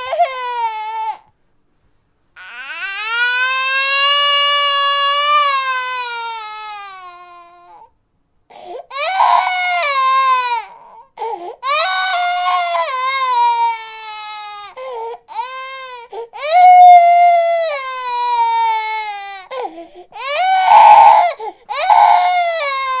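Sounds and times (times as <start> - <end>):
infant crying: 0.0 - 1.3, 2.4 - 7.9, 8.5 - 23.0.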